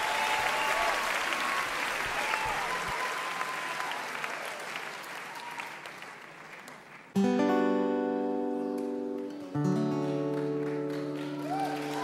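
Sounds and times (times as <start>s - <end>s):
applause: 0.0s - 7.2s, 8.8s - 12.0s
acoustic guitar chords ringing: 7.2s - 11.2s.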